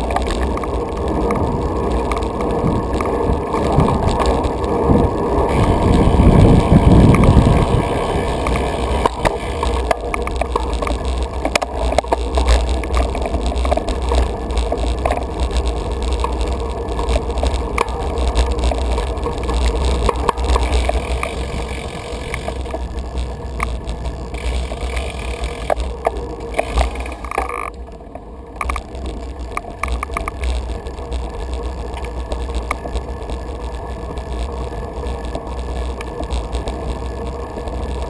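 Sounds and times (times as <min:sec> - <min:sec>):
wind buffeting microphone: 0:00.0 - 0:26.0
bicycle tyre noise on paving: 0:00.0 - 0:38.0
bike rattling clicks: 0:00.0 - 0:38.0.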